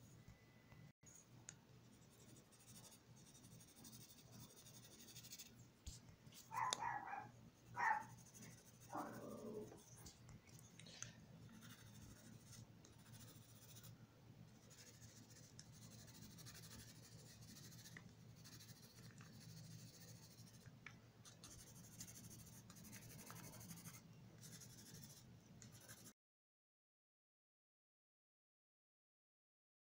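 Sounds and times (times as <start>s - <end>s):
pencil scratching on paper: 1.9s - 5.6s, 6.3s - 10.2s, 11.5s - 26.2s.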